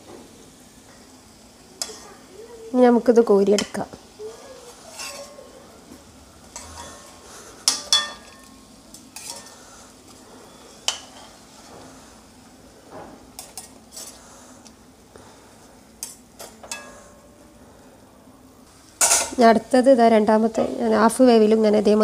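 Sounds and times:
deep-frying sizzle: 0.0s - 22.0s
metal utensils clinking on pan: 4.9s - 5.4s, 6.5s - 9.6s, 16.0s - 17.2s, 19.0s - 19.4s.

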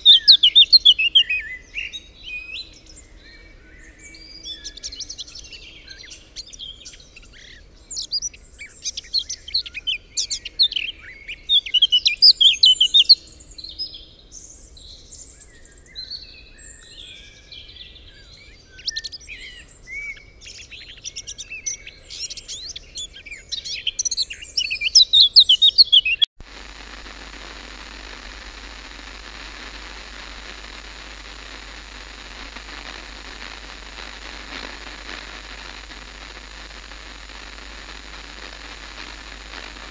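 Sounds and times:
static hiss: 0.0s - 17.5s, 20.4s - 39.9s
songbirds chirping and singing: 0.0s - 26.3s.

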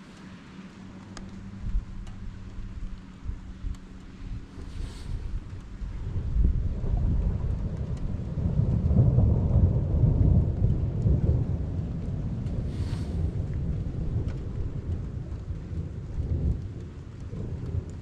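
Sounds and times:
steady rain: 0.0s - 18.0s
rolling thunder: 3.2s - 18.0s
brief hiss: 4.6s - 5.3s.

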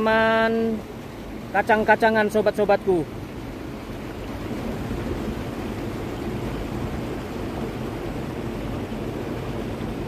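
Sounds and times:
wind buffeting microphone: 3.1s - 10.0s.

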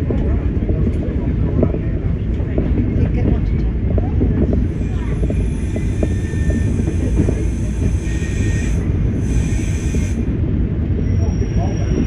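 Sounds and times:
diesel train engine rumbling: 0.0s - 12.0s
wheels knocking on track: 0.0s - 12.0s
faint high squeal: 11.0s - 12.0s.

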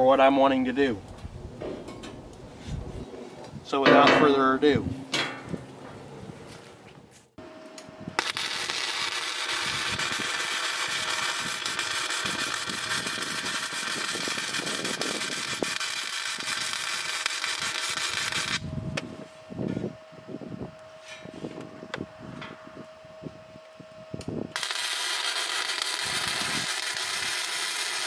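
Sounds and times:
arc welding crackle: 8.2s - 18.7s, 24.5s - 28.0s.

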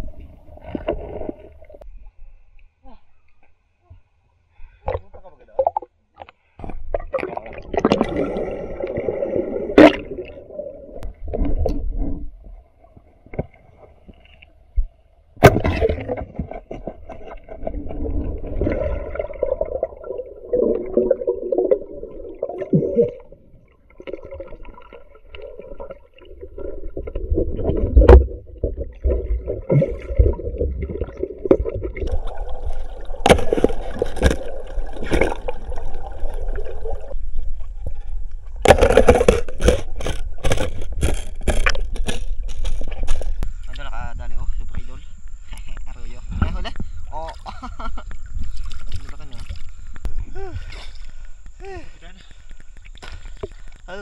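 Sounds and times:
underwater gurgling and sloshing: 0.0s - 2.8s, 4.5s - 54.0s.

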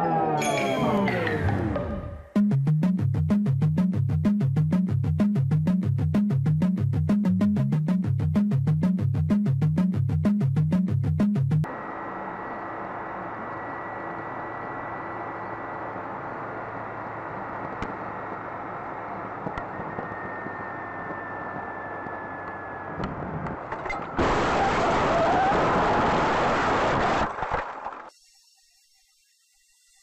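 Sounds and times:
car road and engine noise: 11.6s - 28.1s
car crash: 22.9s - 28.1s.

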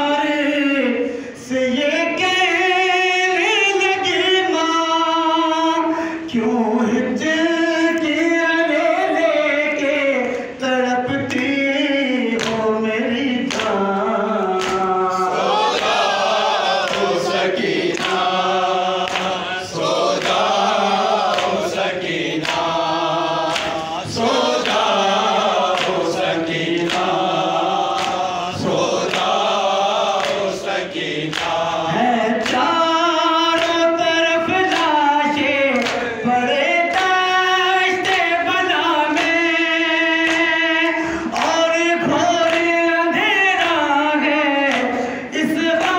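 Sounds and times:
man singing a lament: 0.0s - 45.9s
voices singing in chorus: 0.0s - 45.9s
chest-beating slaps: 16.8s - 17.2s.

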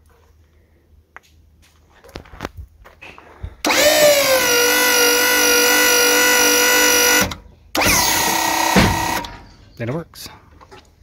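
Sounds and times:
hydraulic pump motor whine: 3.6s - 9.6s.

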